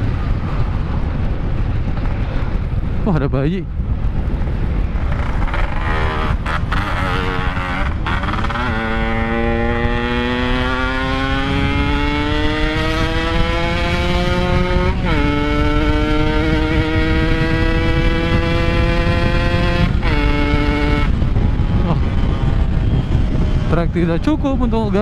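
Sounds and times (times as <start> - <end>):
two-stroke motorcycle engine accelerating: 4.8 - 23.7.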